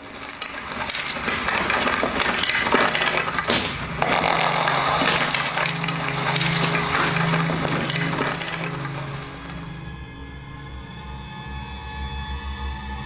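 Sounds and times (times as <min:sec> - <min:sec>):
dense crackling crunching noise: 0:00.0 - 0:09.8.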